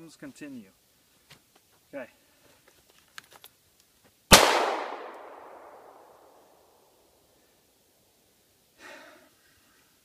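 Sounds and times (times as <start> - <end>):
gunshot echo: 4.3 - 6.5.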